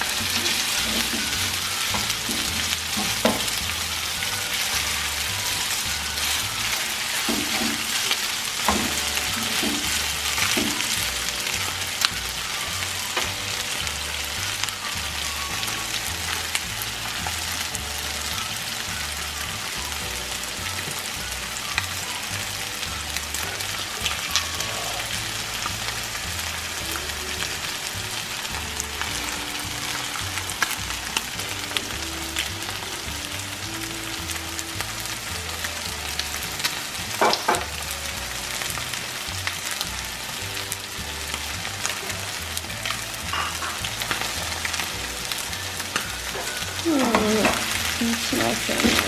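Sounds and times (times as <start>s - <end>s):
chicken sizzling in oil: 0.0s - 49.0s
utensil tapping on pan: 0.2s - 3.6s, 37.2s - 37.7s.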